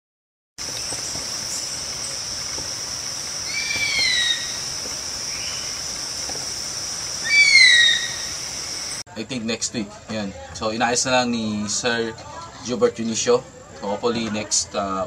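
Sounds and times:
insects droning: 0:00.6 - 0:09.0
bird whistled call: 0:03.4 - 0:05.9, 0:07.2 - 0:09.0.

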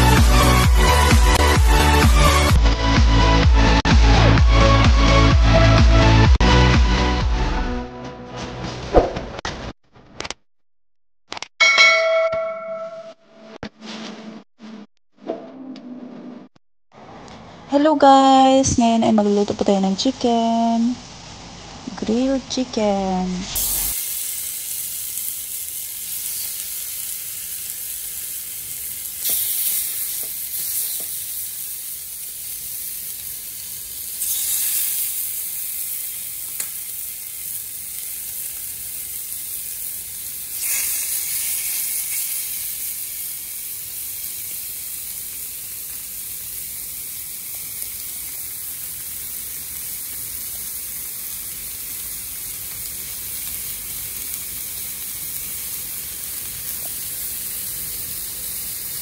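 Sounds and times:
chicken sizzling on a grill pan: 0:23.6 - 0:59.0.

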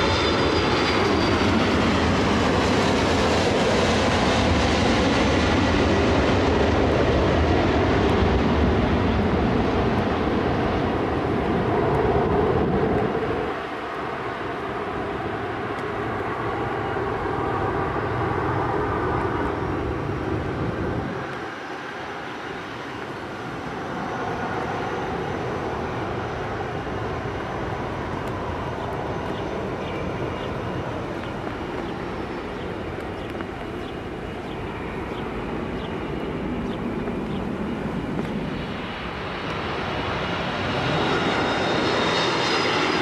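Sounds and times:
jet airliner landing: 0:00.0 - 0:43.0.

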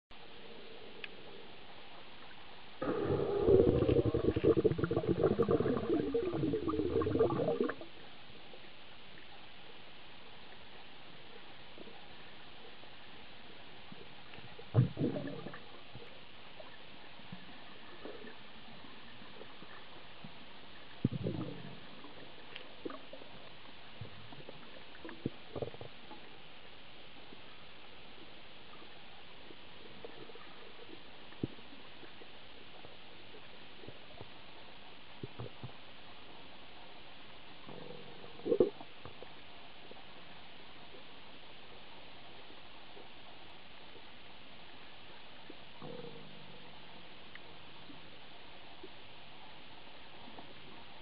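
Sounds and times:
faint clicks: 0:01.0 - 0:01.2, 0:14.2 - 0:14.6, 0:22.0 - 0:26.4, 0:47.2 - 0:48.0
muffled underwater gurgles and knocks: 0:02.8 - 0:07.9, 0:13.9 - 0:26.4, 0:28.2 - 0:36.4, 0:37.6 - 0:40.0
underwater air bubbling: 0:02.8 - 0:08.0, 0:14.6 - 0:16.7, 0:21.0 - 0:23.4.

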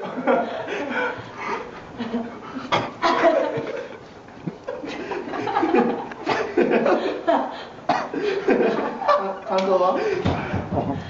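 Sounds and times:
people laughing: 0:00.0 - 0:10.6
people talking: 0:09.0 - 0:11.0.

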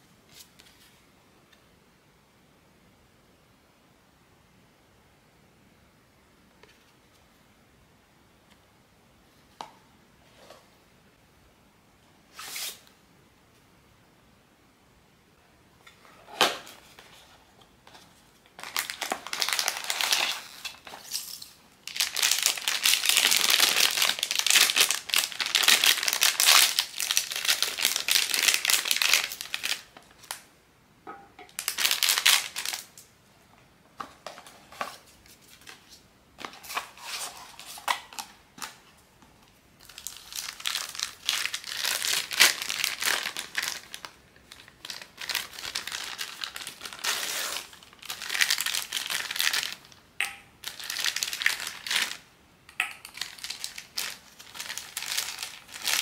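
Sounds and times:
plastic wrapping crinkling: 0:17.9 - 0:30.5, 0:31.5 - 0:33.1, 0:39.8 - 0:50.0, 0:50.6 - 0:52.3, 0:52.9 - 0:56.0.

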